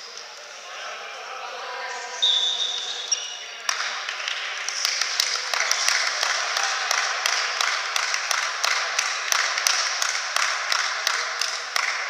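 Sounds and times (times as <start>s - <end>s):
crowd noise hiss: 0.0s - 12.0s
hands clapping rhythmically: 3.6s - 12.0s.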